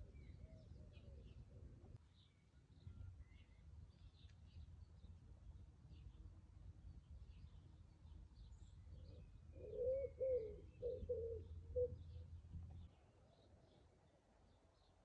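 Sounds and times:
pigeon cooing: 9.6s - 12.0s.

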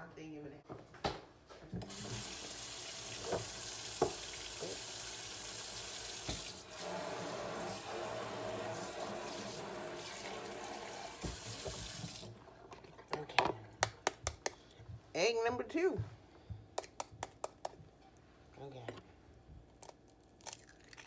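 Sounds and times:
tap running into sink: 1.8s - 5.0s, 6.2s - 12.3s.

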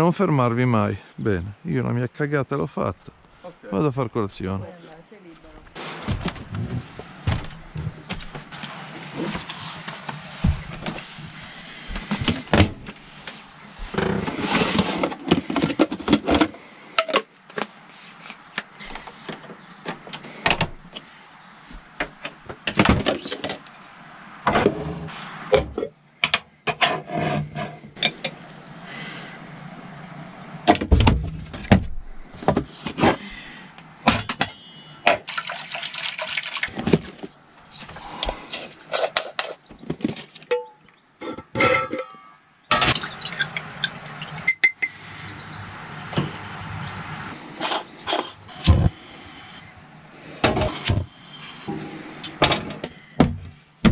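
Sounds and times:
cupboards opening and shutting: 5.8s - 11.2s, 11.9s - 16.5s, 19.4s - 20.8s, 22.1s - 23.6s, 30.6s - 33.2s, 47.6s - 49.0s, 50.4s - 53.9s
brief squeak: 12.8s - 13.8s.

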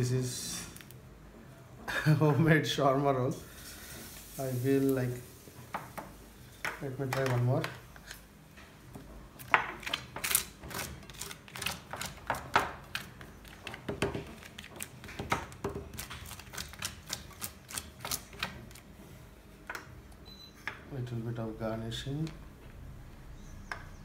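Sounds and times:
spoon clicking and scraping: 9.4s - 18.5s.

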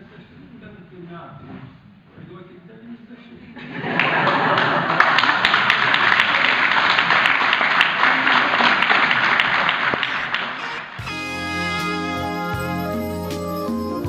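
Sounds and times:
crowd applauding: 4.0s - 11.2s.

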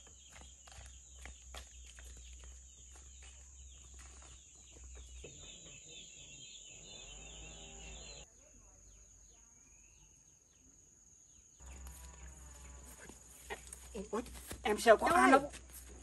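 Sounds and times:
light footsteps on dirt: 0.0s - 5.8s, 11.6s - 16.0s
chickens clucking: 4.6s - 8.2s
high insect drone: 6.8s - 14.6s.

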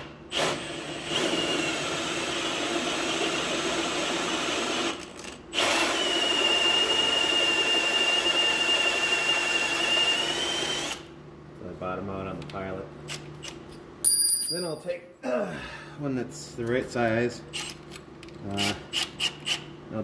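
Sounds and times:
power drill boring metal: 0.3s - 11.0s.

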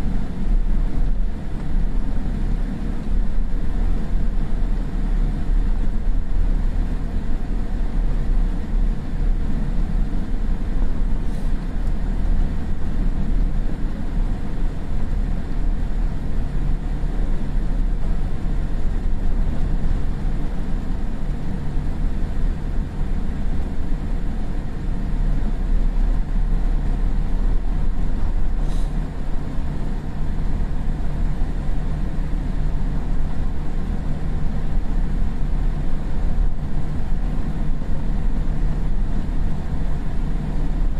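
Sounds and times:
airplane cabin rumble: 0.0s - 40.9s.

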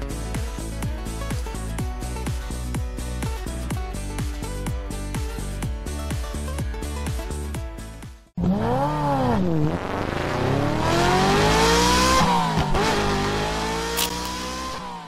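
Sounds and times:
vehicle engine revving and accelerating: 8.4s - 15.0s.

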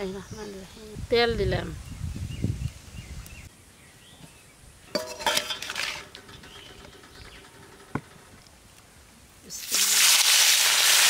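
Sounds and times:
metal cookware clinking: 4.9s - 8.0s
pot ringing: 5.0s - 7.8s.

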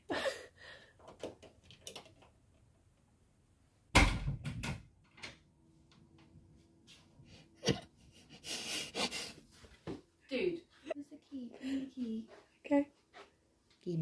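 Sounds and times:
loud thump: 3.9s - 4.6s.

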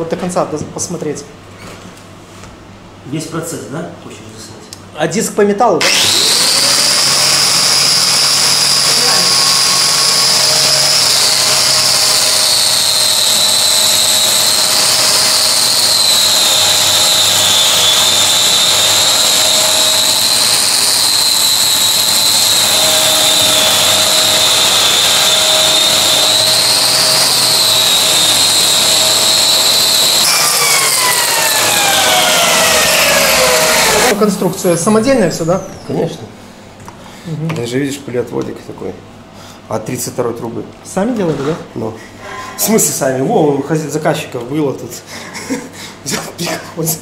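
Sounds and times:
angle grinder high whine: 5.8s - 36.0s
shop vacuum running: 5.8s - 36.5s.

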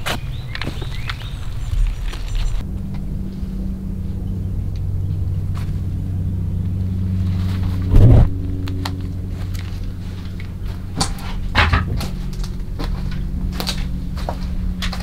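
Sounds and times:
loud thump: 7.9s - 8.3s.

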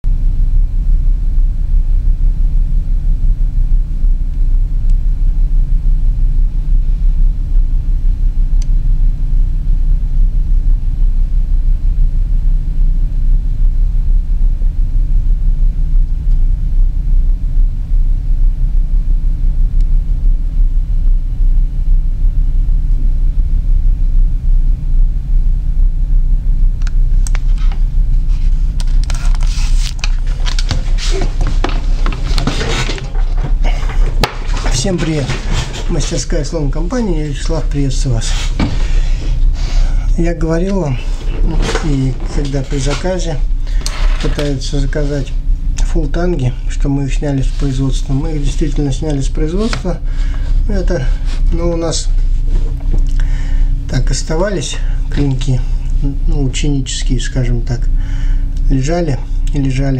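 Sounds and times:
low-pitched hum: 0.0s - 59.9s
clicks and rustles: 28.7s - 36.2s.

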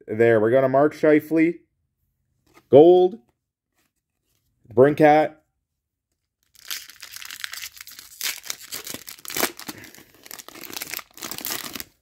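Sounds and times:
wrapper tearing and crinkling: 6.4s - 12.0s.

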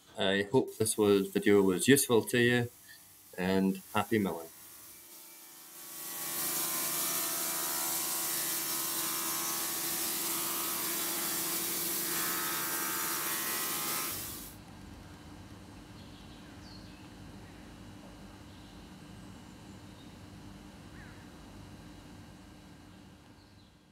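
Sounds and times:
bandsaw sawing through a log: 5.6s - 14.5s.

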